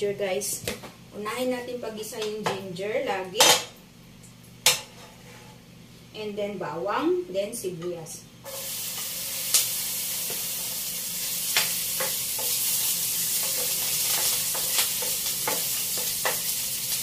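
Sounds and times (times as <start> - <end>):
ginger sizzling in hot oil: 8.4 - 17.0
metal spatula knocking on pan: 13.4 - 16.5.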